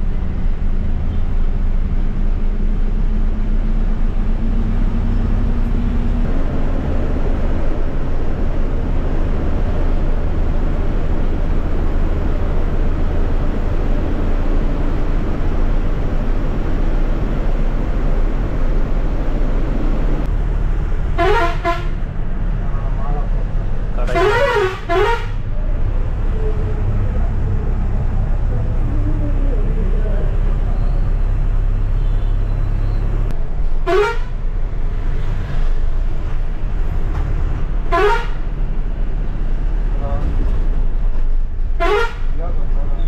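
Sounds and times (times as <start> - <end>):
bus diesel engine droning: 0.0 - 43.0
horn toot: 21.2 - 22.0, 24.0 - 25.4, 33.9 - 34.3, 37.9 - 38.4, 41.8 - 42.3.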